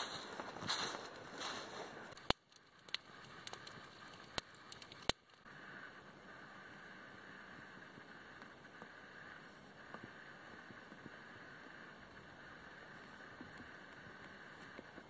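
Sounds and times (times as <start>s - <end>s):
footsteps crunching in snow: 0.0s - 2.2s
quiet steady hiss: 0.0s - 15.0s
campfire crackling and popping: 0.1s - 15.0s.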